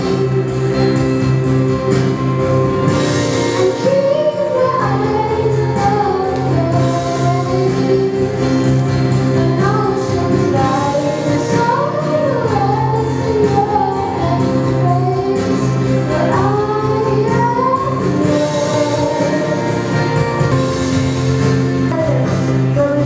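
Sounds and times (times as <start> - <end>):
musical accompaniment: 0.0 - 23.0
girl singing into microphone: 3.5 - 8.6, 9.3 - 19.9, 21.9 - 23.0.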